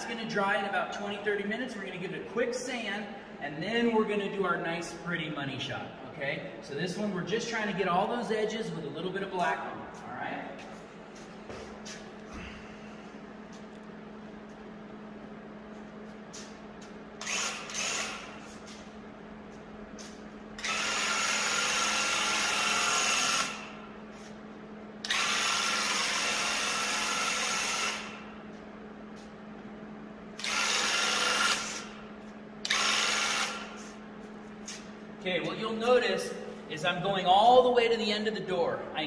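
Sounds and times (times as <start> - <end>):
paint sprayer pump buzzing and hissing: 15.7 - 29.4, 30.3 - 35.5.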